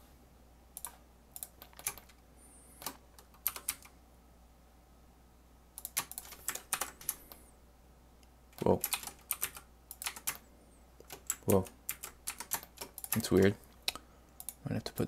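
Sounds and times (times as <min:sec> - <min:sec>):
computer keyboard typing: 0:00.8 - 0:02.2, 0:02.8 - 0:03.9, 0:05.8 - 0:07.4, 0:08.6 - 0:10.4, 0:11.0 - 0:13.5.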